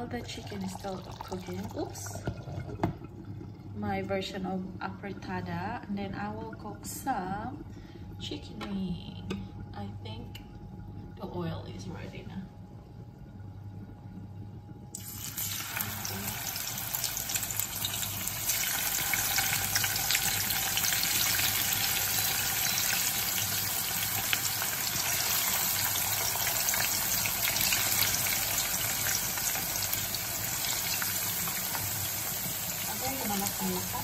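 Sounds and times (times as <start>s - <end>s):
chicken wings sizzling in oil: 15.0s - 34.0s.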